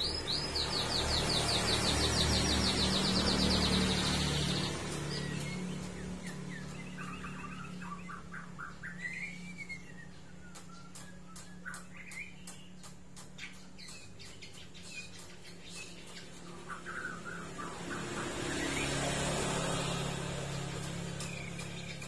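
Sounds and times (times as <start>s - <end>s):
bird chirping: 0.0s - 22.0s
sharp clicks: 10.5s - 15.4s.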